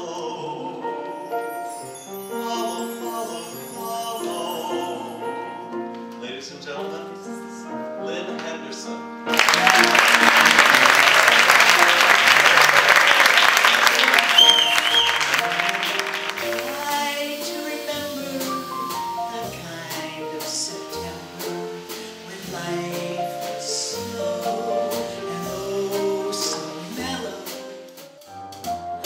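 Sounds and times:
piano: 0.0 - 29.0
audience applause: 9.3 - 16.8
two-note whistle: 14.2 - 15.5.

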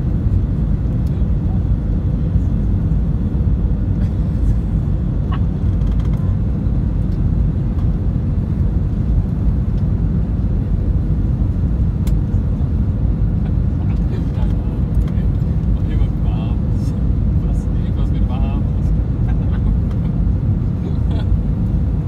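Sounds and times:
aircraft engine rumble: 0.0 - 22.0.

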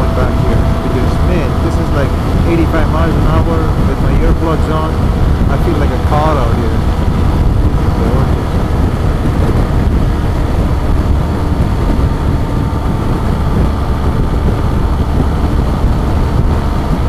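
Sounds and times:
motorcycle engine: 0.0 - 17.0
road noise: 0.0 - 17.0
wind rushing over microphone: 0.0 - 17.0.

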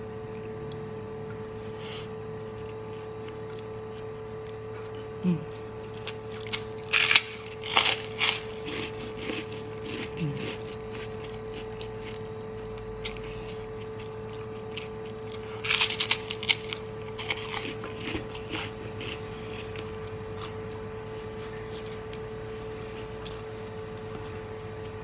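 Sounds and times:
steady hum: 0.0 - 25.0
cracker crunching: 0.4 - 25.0.

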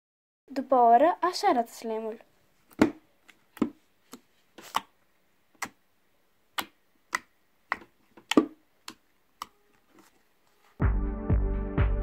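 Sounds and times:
sticky clicks of slime: 3.5 - 5.8, 6.5 - 9.6.

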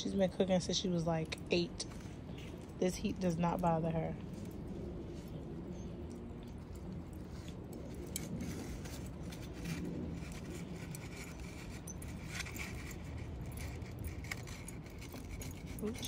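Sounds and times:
low background rumble: 0.0 - 16.0
charcoal clinking and scraping: 6.6 - 16.0.

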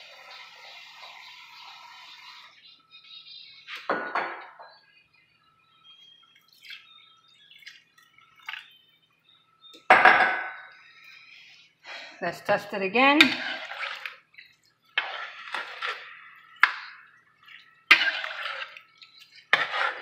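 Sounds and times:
water pouring into a pot: 13.2 - 20.0.

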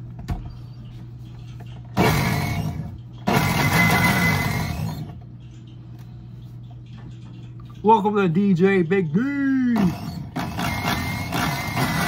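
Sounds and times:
blender running: 2.0 - 5.1, 9.8 - 12.0.

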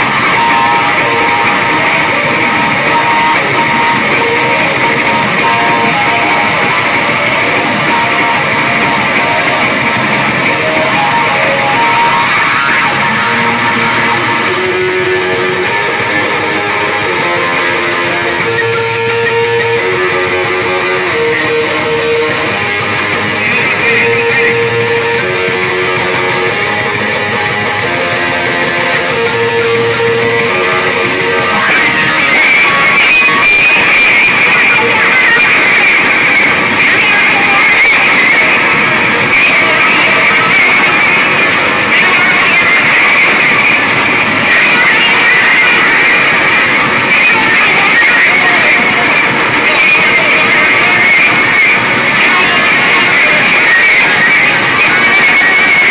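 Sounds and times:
distorted bass guitar riff: 0.0 - 55.9
drums: 0.0 - 55.9.

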